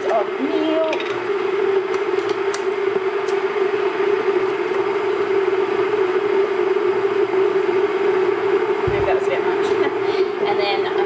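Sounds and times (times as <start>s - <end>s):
machine hum with hiss: 0.0s - 11.0s.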